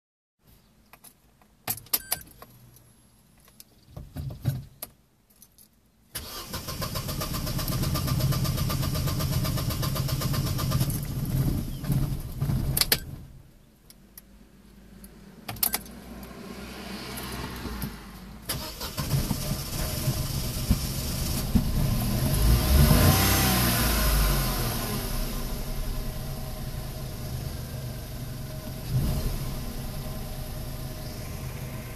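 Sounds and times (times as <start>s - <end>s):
engine cranking on starter: 6.2s - 12.3s, 18.5s - 21.9s.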